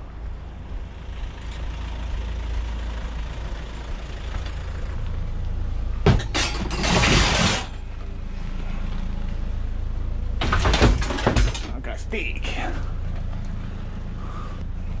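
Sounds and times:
scrap items scraping and rustling: 6.2 - 7.8.

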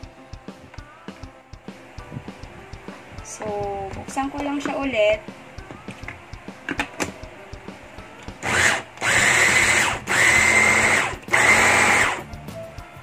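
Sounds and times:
food processor motor whine: 8.4 - 12.2.

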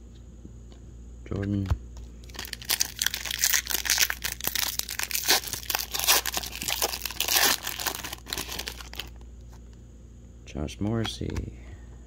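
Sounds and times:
foil wrapper tearing and crinkling: 2.2 - 9.2.

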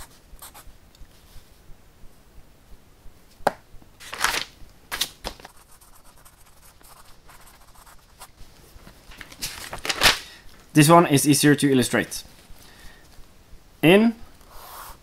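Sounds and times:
pen scratching on paper: 0.0 - 0.7, 5.5 - 8.4, 14.5 - 15.0
notebook paper rustling: 4.0 - 5.6, 8.8 - 10.3.

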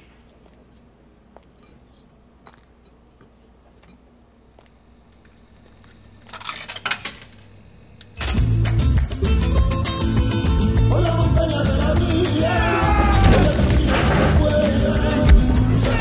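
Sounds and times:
coins rattling in slot: 5.2 - 8.4
loud jukebox music: 8.0 - 16.0.

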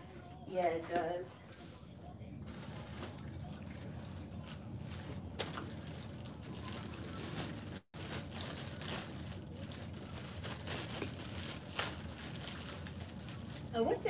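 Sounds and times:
low room noise: 0.0 - 14.0.

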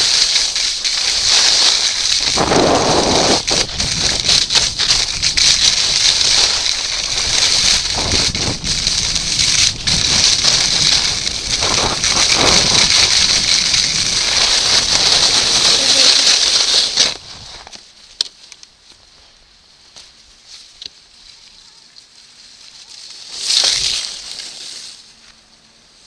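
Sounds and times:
skis scraping on snow: 0.0 - 17.9, 22.2 - 26.0
wind buffeting microphone: 0.9 - 16.0.

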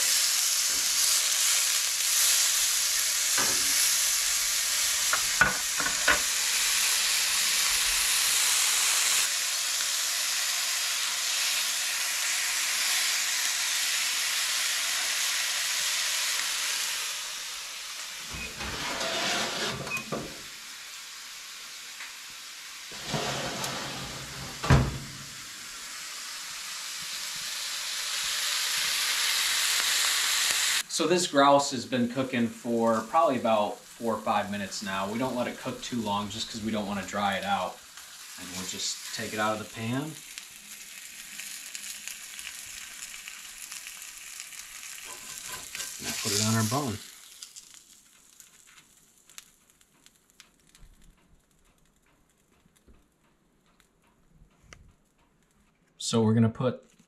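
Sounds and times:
meat sizzling in a skillet: 0.0 - 50.8
knocks and thump: 24.2 - 25.3.

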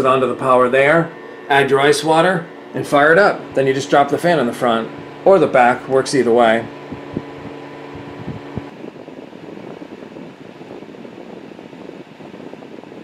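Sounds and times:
hum and clicks: 0.0 - 8.8
fan blowing air: 0.0 - 13.0.

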